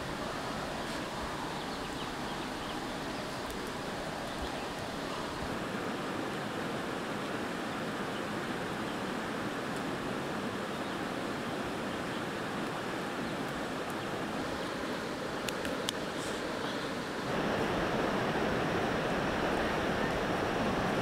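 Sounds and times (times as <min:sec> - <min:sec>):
river rapids rushing: 0:00.0 - 0:21.0.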